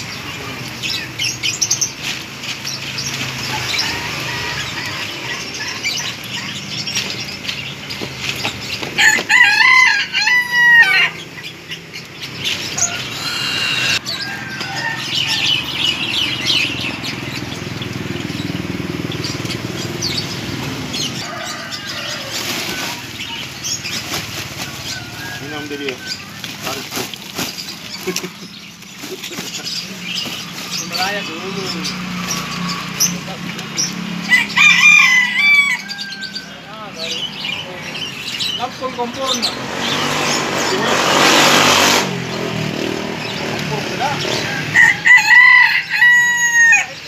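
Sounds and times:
rooster crowing: 0:03.4 - 0:06.4, 0:09.0 - 0:11.2, 0:12.8 - 0:15.9, 0:21.2 - 0:23.2, 0:24.7 - 0:26.4, 0:34.2 - 0:36.8, 0:44.2 - 0:47.0.

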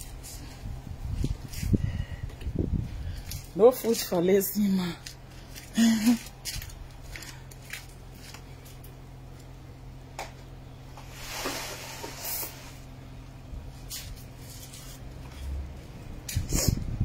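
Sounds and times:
steady low hum: 0:00.0 - 0:17.0
brief hiss: 0:11.1 - 0:12.8.

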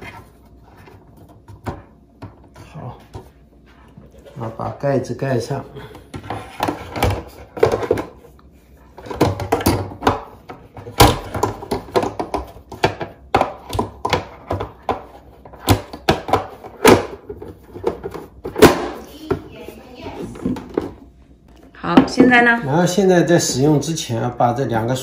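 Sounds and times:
plastic cover clicking and knocking: 0:09.0 - 0:19.4.

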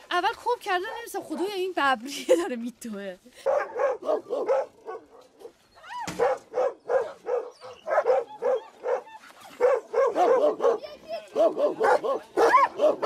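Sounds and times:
dogs barking: 0:03.4 - 0:13.0
dog whining: 0:05.7 - 0:10.5.

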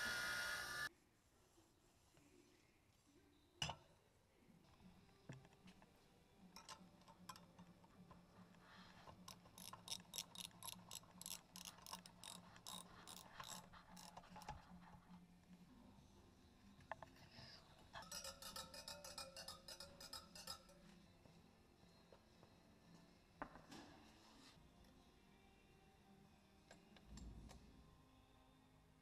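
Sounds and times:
ratchet wrench clicking: 0:09.2 - 0:14.5.

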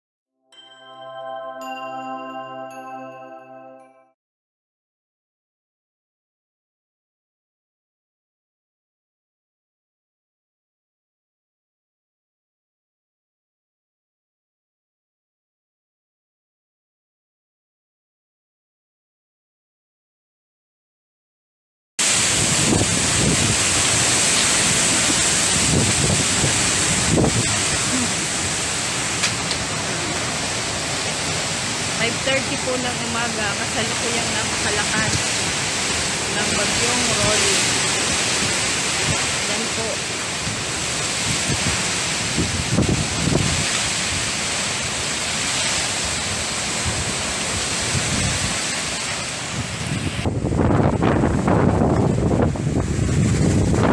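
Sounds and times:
wind buffeting microphone: 0:22.0 - 0:39.6, 0:40.3 - 0:44.4, 0:46.2 - 0:53.9
wind thrashing palm trees: 0:22.0 - 0:53.9.

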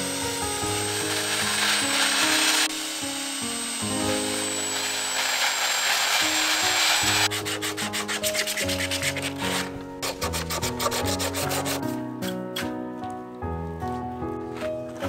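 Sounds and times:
angle grinder sanding wood: 0:00.0 - 0:12.0
sanding sponge rubbing wood: 0:04.6 - 0:11.9.

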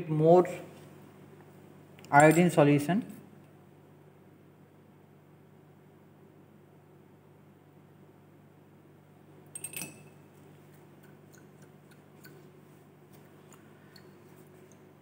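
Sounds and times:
low room hum: 0:00.0 - 0:15.0
glass dropper clinking: 0:09.6 - 0:10.3.

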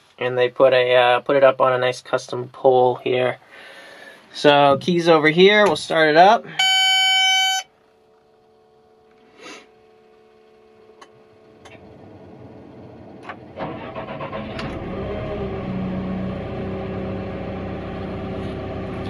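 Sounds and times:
warning beep: 0:06.5 - 0:07.7
diesel engine starting and idling: 0:11.3 - 0:19.0.

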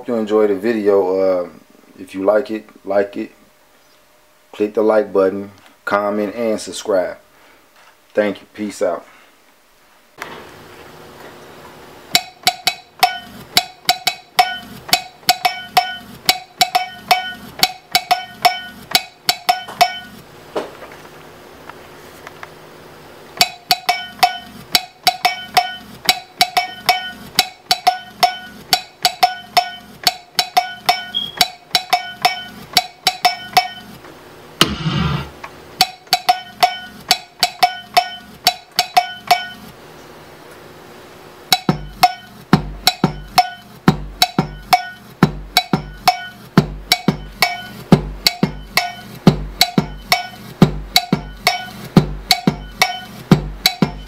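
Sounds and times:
programmed drum beat: 0:12.1 - 0:20.2, 0:23.4 - 0:34.0, 0:34.6 - 0:39.8, 0:41.5 - 0:54.0
noisy burst: 0:34.6 - 0:35.5
deep kick drum: 0:41.7 - 0:44.6, 0:45.2 - 0:46.0, 0:46.6 - 0:48.7, 0:49.3 - 0:54.0.

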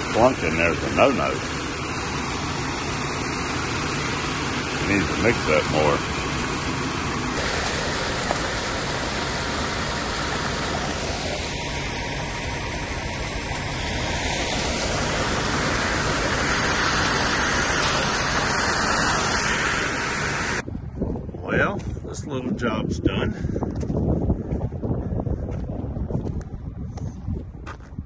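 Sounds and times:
concrete mixer truck running: 0:00.0 - 0:20.7.

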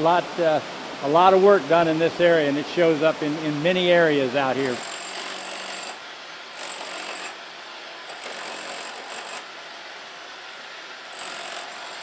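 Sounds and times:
pneumatic chisel hammering rock: 0:04.6 - 0:07.4, 0:08.1 - 0:09.5, 0:11.1 - 0:12.0.

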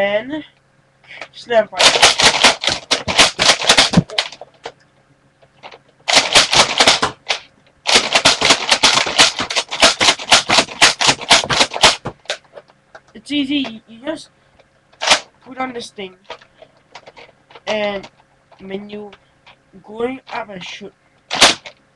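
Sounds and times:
toy blaster plastic clacks: 0:01.8 - 0:04.8, 0:05.6 - 0:12.5, 0:15.0 - 0:15.3, 0:21.3 - 0:21.8.

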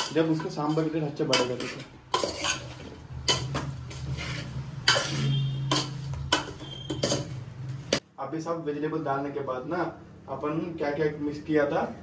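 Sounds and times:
metal spoon scraping a metal pot: 0:00.0 - 0:08.0.

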